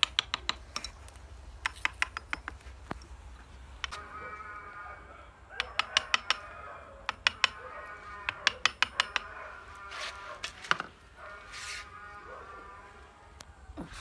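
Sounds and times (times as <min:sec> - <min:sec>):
hammer tapping steel chisel: 0:00.0 - 0:01.0, 0:01.6 - 0:02.6, 0:05.6 - 0:06.4, 0:07.0 - 0:07.6, 0:08.3 - 0:09.3.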